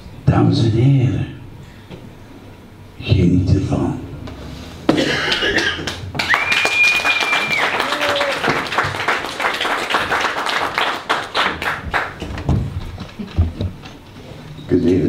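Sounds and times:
audience clapping and cheering: 5.3 - 12.5
high whistle: 6.2 - 8.2.

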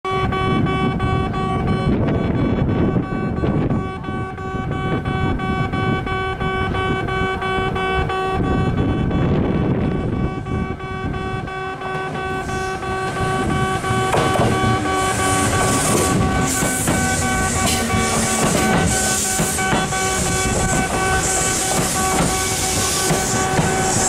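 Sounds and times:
train wheels rumbling: 0.5 - 24.0
brake hiss: 14.8 - 24.0.

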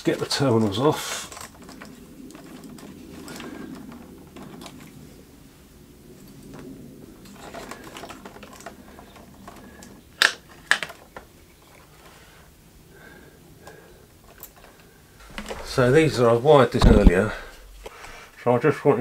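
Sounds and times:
screwdriver and small parts rattling: 0.0 - 5.2, 6.2 - 12.1, 14.1 - 16.2.

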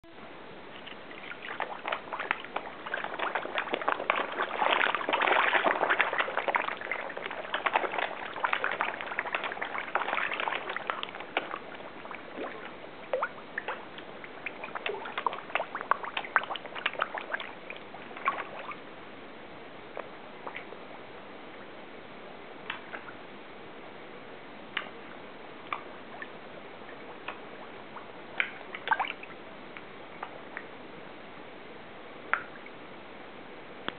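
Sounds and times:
fish splashing at water surface: 0.8 - 18.8.

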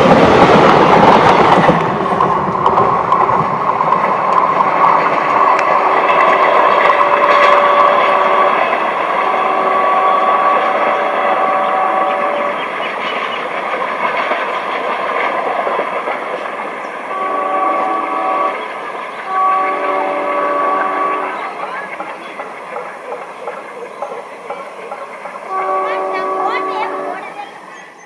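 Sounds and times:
train rattling over track: 0.0 - 28.0
locomotive air horn: 6.8 - 12.6, 17.1 - 18.6, 19.3 - 21.4, 25.5 - 27.3.

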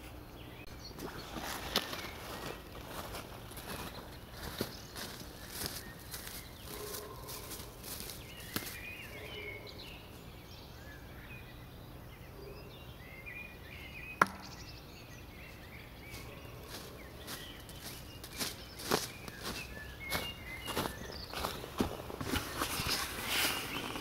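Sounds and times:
birds chirping: 0.0 - 24.0
footsteps in dry leaves: 1.0 - 9.3, 16.0 - 24.0
knife striking wooden target: 14.2 - 14.5.

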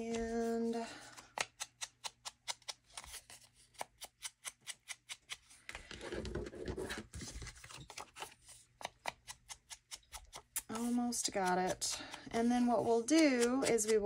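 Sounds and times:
paper rustling: 5.3 - 9.2.

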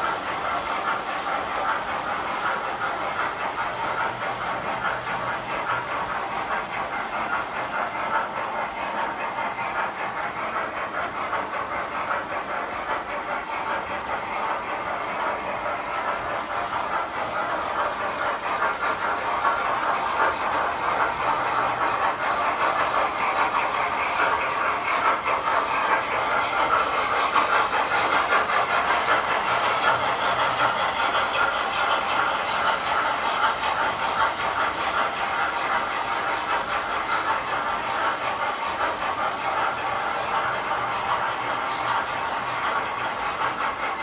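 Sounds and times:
model trains rattling whir: 0.0 - 44.0.

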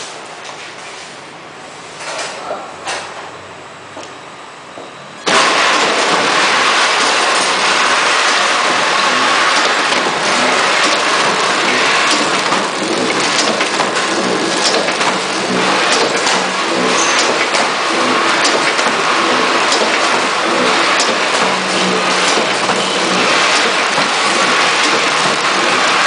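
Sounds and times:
packaging machine running: 5.2 - 26.0.

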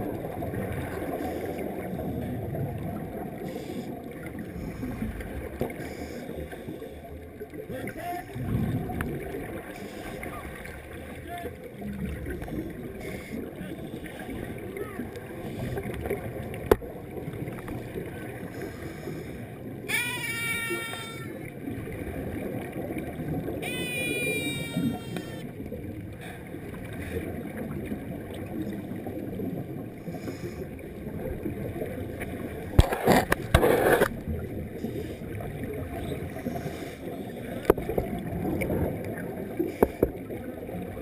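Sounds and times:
underwater water rush: 0.0 - 41.0
gush of exhaled bubbles: 8.4 - 9.7
short whining tones: 19.9 - 21.4, 23.6 - 25.5.

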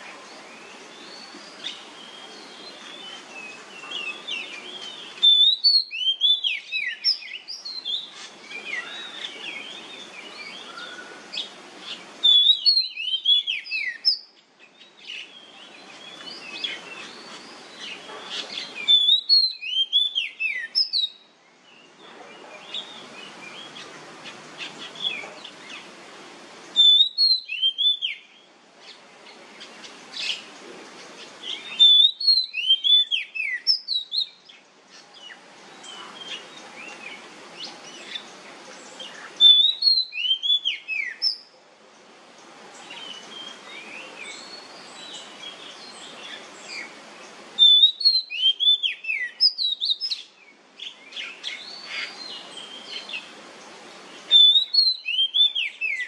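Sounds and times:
bird singing whistled notes: 0.0 - 23.9, 26.7 - 29.0, 31.4 - 34.6, 39.0 - 41.5, 47.6 - 53.3, 54.3 - 56.0
soft bird chirps: 0.0 - 25.9
steady hiss: 0.0 - 56.0.

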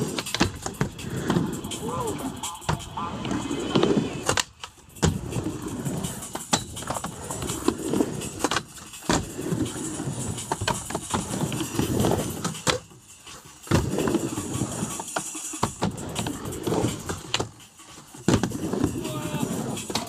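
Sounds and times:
skateboard clacking on coping: 0.0 - 20.0
skateboard wheels rolling on concrete: 0.0 - 20.0.

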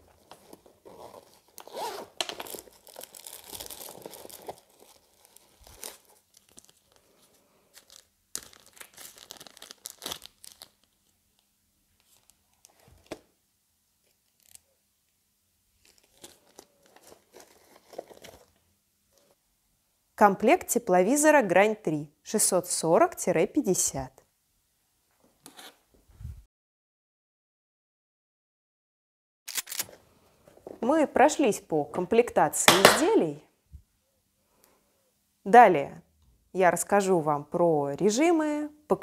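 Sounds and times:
plastic bag and paper crinkling: 0.0 - 13.2, 15.8 - 18.6.

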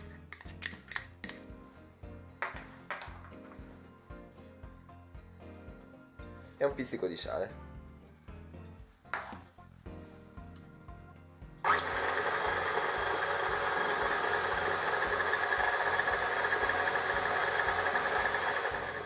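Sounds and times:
stand mixer running: 11.7 - 19.0.

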